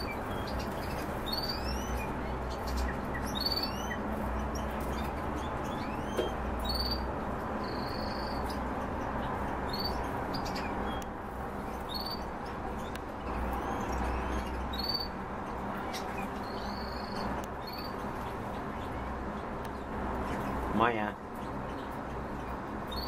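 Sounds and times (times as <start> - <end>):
cage birds chirping: 0.0 - 23.0.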